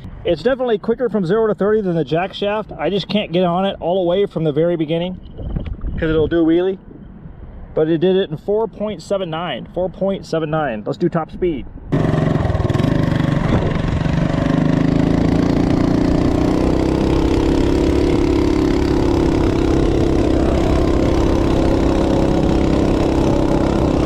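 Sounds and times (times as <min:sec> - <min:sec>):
minibike engine at full throttle: 0:11.9 - 0:24.0.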